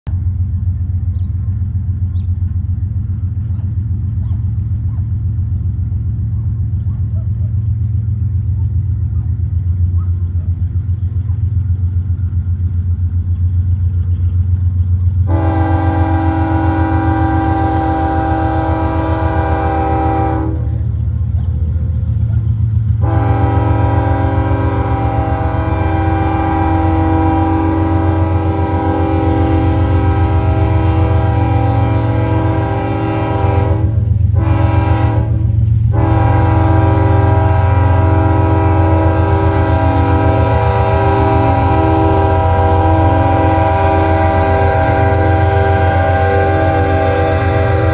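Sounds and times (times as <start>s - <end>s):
diesel locomotive throbbing: 0.0s - 47.9s
locomotive air horn blasts: 15.2s - 20.9s, 23.0s - 47.9s.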